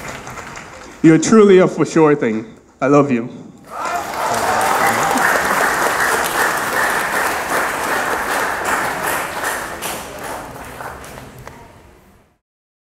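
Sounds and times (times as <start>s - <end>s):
audience applauding: 0.0s - 1.0s, 3.6s - 11.6s.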